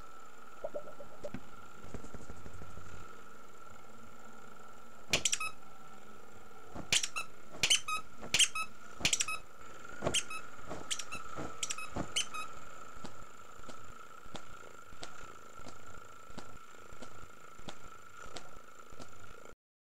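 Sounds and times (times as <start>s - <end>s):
faint steady high tone: 0.0s - 1.4s
short sharp high squeaks: 5.2s - 5.6s, 6.8s - 9.4s, 10.0s - 12.6s.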